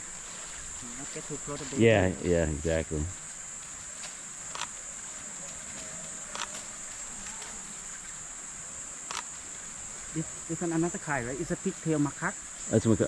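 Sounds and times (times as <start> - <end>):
cicadas droning: 0.0 - 13.0
faint clicks: 5.4 - 8.1, 9.1 - 9.3.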